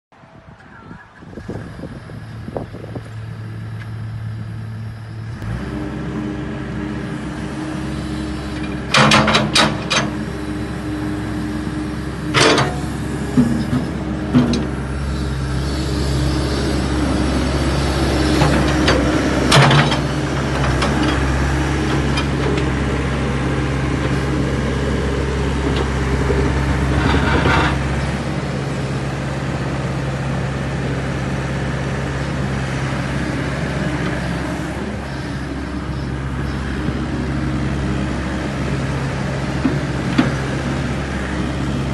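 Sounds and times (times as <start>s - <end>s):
excavator diesel engine running: 1.1s - 41.9s.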